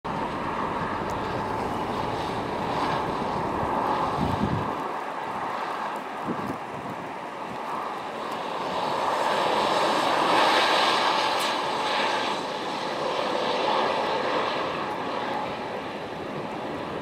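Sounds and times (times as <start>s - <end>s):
truck passing by: 0.1s - 4.8s
wind noise: 0.1s - 17.0s.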